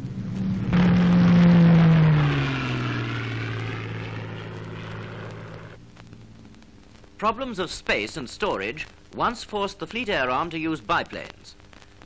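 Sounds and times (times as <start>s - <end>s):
propeller aircraft flying past: 0.0s - 6.5s.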